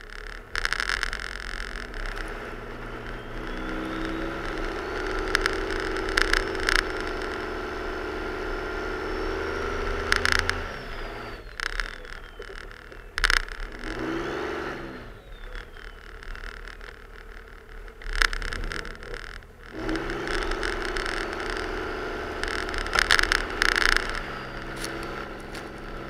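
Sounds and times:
diesel engine under load: 0.0 - 26.0
high turbo whistle: 2.4 - 6.6.

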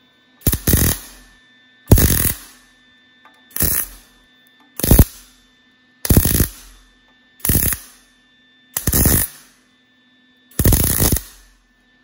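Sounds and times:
welder arc bursts: 0.4 - 1.3, 1.9 - 2.7, 3.5 - 4.1, 4.8 - 5.4, 6.0 - 8.1, 8.8 - 9.6, 10.5 - 11.6.

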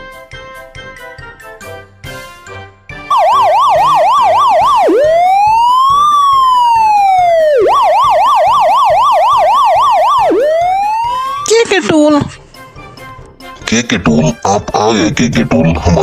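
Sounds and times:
light music: 0.0 - 16.0
police car siren: 3.1 - 11.6.

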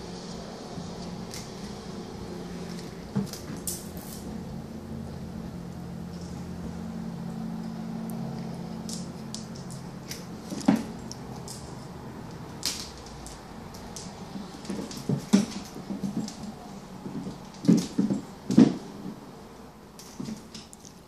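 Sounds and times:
paws clicking on wooden floor: 8.1 - 18.8.

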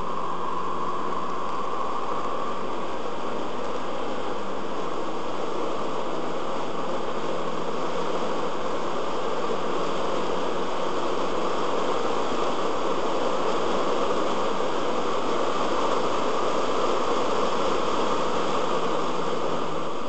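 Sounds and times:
faint low drone: 0.0 - 9.2
road and wind noise inside car: 0.0 - 20.0.

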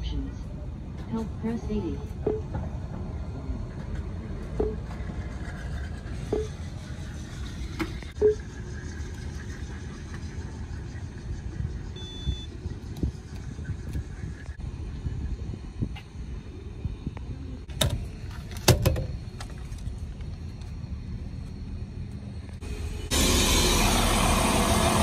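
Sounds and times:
low outdoor rumble: 0.0 - 25.0
higher beep: 12.0 - 12.5
machine short low beeps: 12.0 - 12.5.

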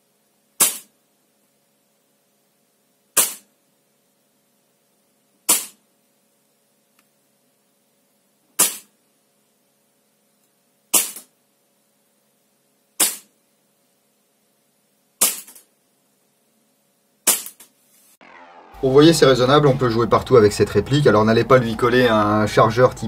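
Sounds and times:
airsoft pistol shots: 0.6 - 0.9, 3.2 - 3.5, 5.5 - 5.8, 8.6 - 8.9, 10.9 - 11.3, 13.0 - 13.4, 15.2 - 15.6, 17.2 - 17.7.

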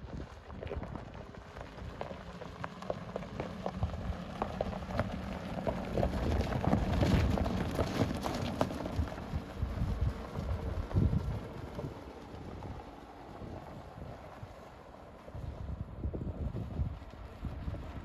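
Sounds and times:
tyres crunching over gravel: 0.0 - 10.6.

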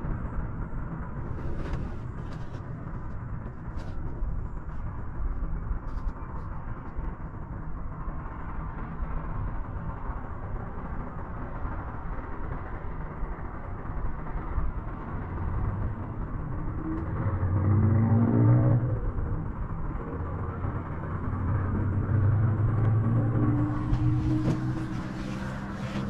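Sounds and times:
cable car rumble and hiss: 0.0 - 26.0
drone rising in pitch: 15.4 - 26.0.

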